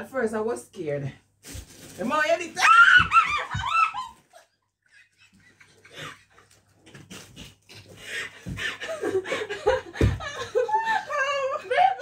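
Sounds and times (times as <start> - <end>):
woman squealing: 2.6 - 4.2.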